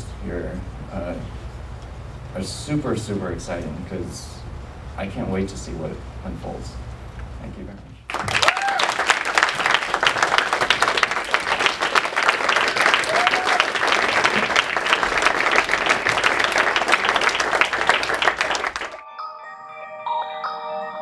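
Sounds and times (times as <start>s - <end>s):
audience applauding: 8.1s - 19.0s
chiming music tune: 19.0s - 21.0s.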